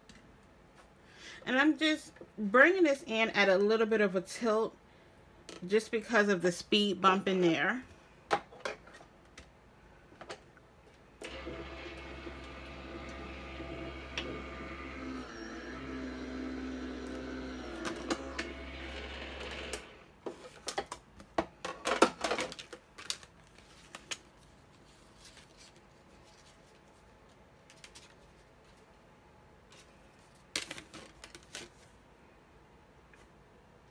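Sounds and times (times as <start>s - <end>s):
die-cutting machine humming: 11.2s - 20.0s.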